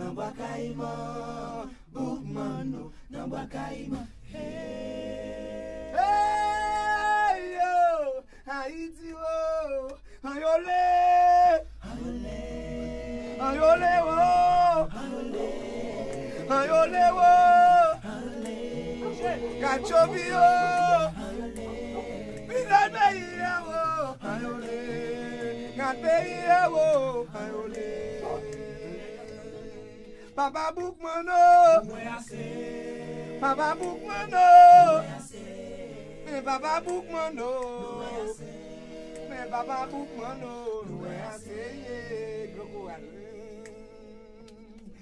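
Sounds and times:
group singing a cappella: 0.0 - 45.0
singers breathing: 2.9 - 3.1, 30.0 - 30.4.

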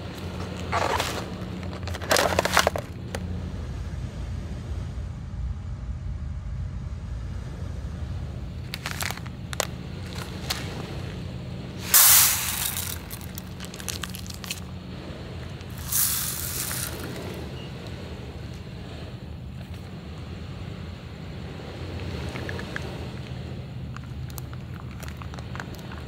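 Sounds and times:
steam hissing: 11.8 - 14.4, 15.7 - 17.5.

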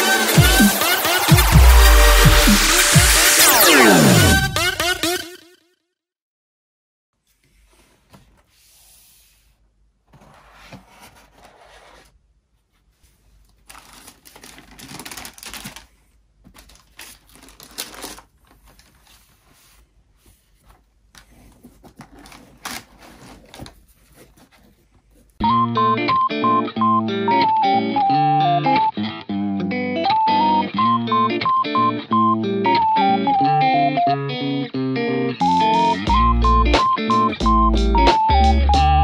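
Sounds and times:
tissue paper rustling: 12.7 - 25.4
cardboard box opening: 21.5 - 24.8.

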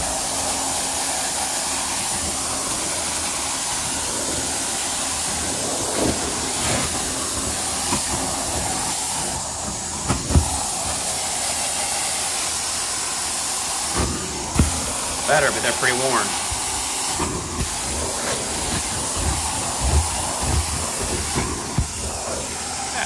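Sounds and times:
carpet cleaner rushing hiss: 0.0 - 23.0
tool knocking stair treads: 14.0 - 15.0, 16.4 - 22.3.

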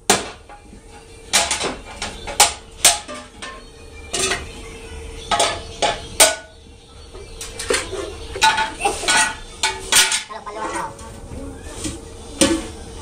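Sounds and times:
faint hum: 0.0 - 13.0
metal objects clanking: 1.3 - 4.5, 5.3 - 6.5, 7.2 - 11.1.

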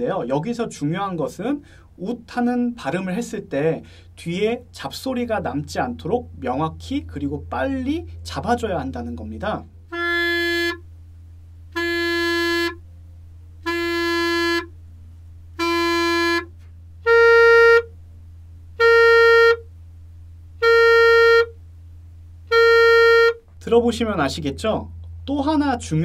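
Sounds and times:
clarinet short held notes: 9.9 - 10.8, 15.6 - 17.9, 18.8 - 19.6, 20.6 - 21.5, 22.5 - 23.4.

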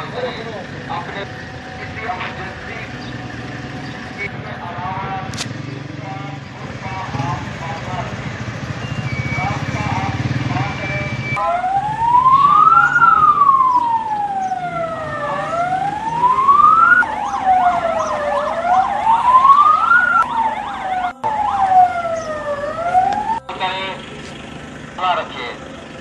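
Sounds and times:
fast sweeping siren: 8.6 - 23.4
siren slow wail: 8.6 - 24.0.

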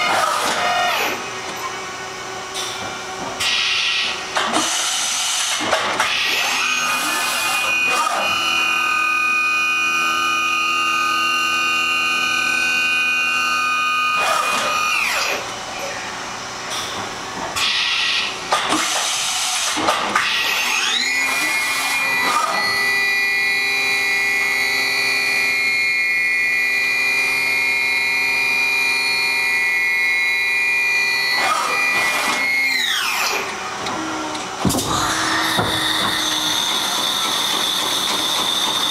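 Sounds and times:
machine spindle whining: 0.0 - 38.9
sharp knocks: 34.6 - 37.7.

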